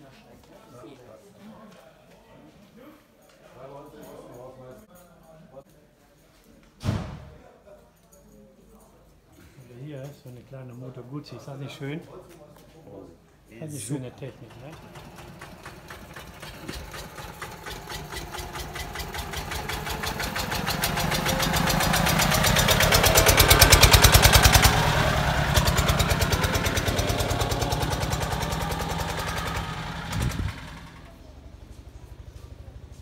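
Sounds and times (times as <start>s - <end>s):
tractor engine thudding: 14.5s - 31.1s.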